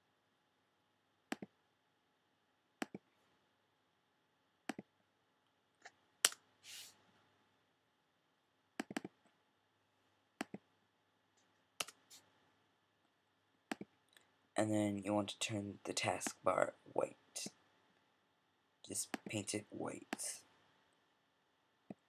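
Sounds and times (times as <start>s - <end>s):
computer mouse clicks: 1.3s - 1.5s, 2.8s - 3.1s, 4.7s - 4.9s, 8.8s - 9.2s, 10.4s - 10.6s, 11.8s - 12.2s, 13.7s - 14.3s.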